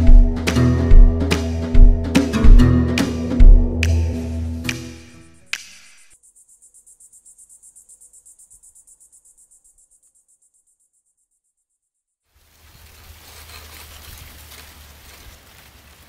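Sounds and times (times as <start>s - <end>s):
music cue: 0.0s - 6.2s
crickets chirping: 5.8s - 15.5s.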